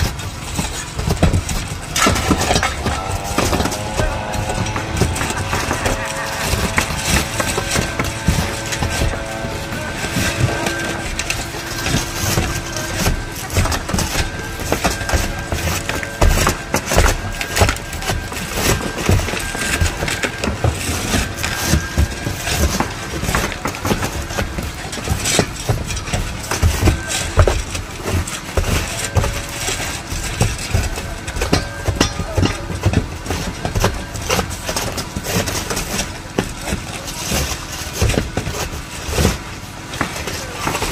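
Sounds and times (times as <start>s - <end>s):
engine running: 0.0s - 40.9s
scraping and clatter of shingles: 0.0s - 40.9s.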